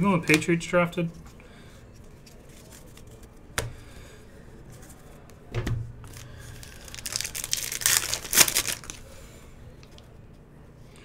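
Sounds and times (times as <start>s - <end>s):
foil wrapper crinkling and tearing: 6.1s - 9.1s.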